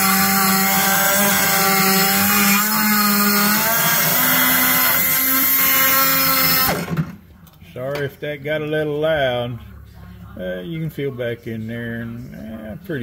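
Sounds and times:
die grinder whining on metal: 0.0s - 7.0s.

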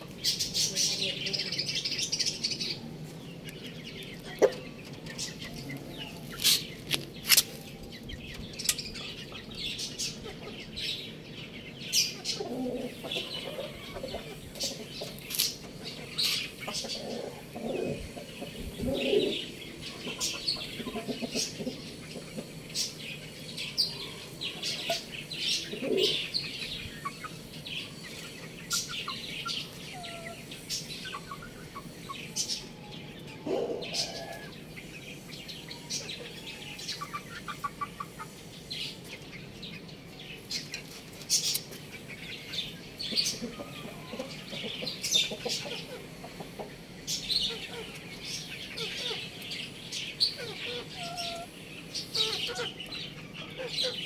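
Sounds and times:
chickens clucking: 0.0s - 54.0s
small birds chirping: 0.0s - 54.0s.

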